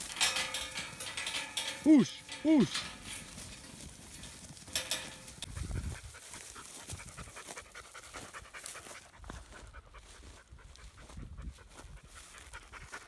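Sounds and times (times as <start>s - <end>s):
dog panting rapidly: 5.6s - 13.0s.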